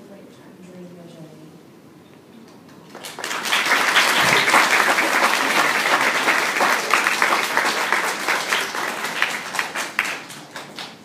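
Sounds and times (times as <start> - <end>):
children applauding: 2.9 - 11.0.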